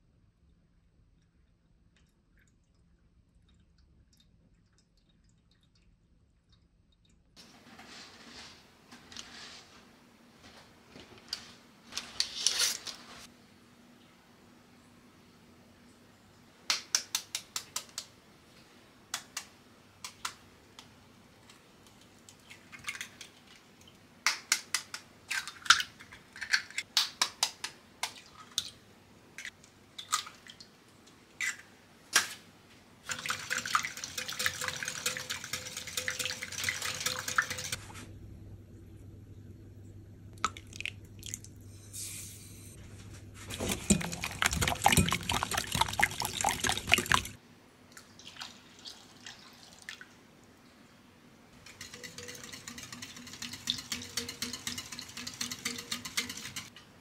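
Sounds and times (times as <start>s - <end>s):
whisk beating in glass bowl: 43.5s - 47.3s, 51.7s - 56.7s.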